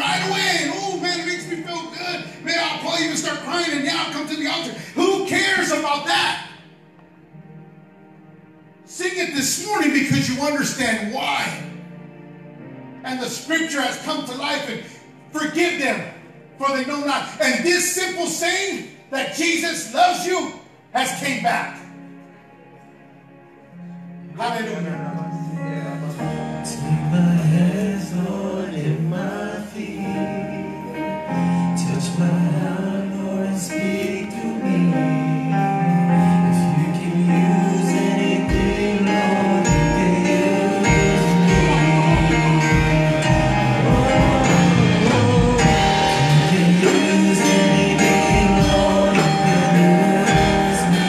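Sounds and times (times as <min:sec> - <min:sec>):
worship music with singing: 0:00.0 - 0:07.6, 0:23.8 - 0:51.0
deep bass notes: 0:40.9 - 0:51.0.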